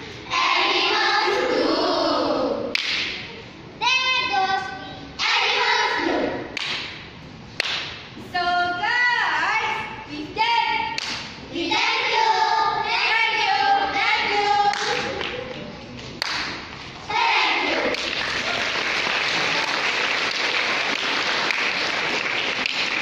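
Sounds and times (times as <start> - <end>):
children's choir singing: 0.2 - 2.7, 5.2 - 6.5, 11.5 - 15.2, 17.0 - 18.2
audience applause: 17.9 - 23.0.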